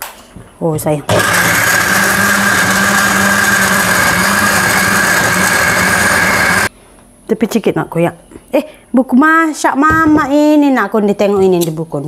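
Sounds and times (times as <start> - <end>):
electric blender whining: 1.1 - 6.7.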